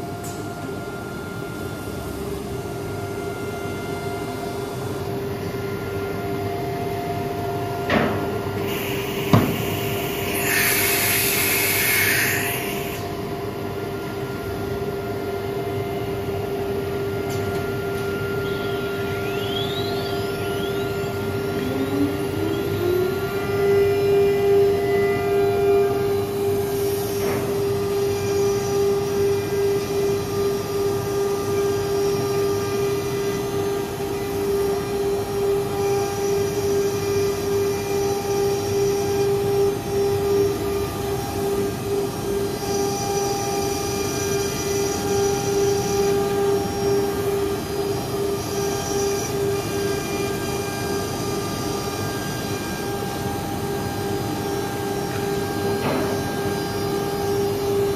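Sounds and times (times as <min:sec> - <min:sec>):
spindle whine: 0:00.0 - 0:57.9
router bit cutting a sheet: 0:08.6 - 0:13.0.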